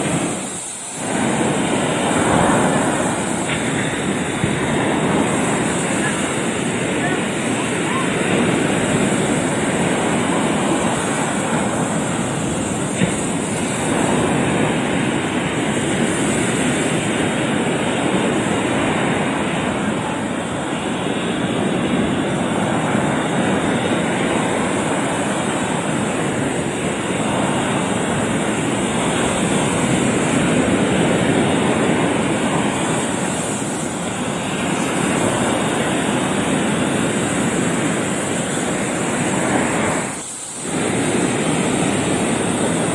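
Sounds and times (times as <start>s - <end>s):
surf on rocky shore: 0.0s - 42.9s.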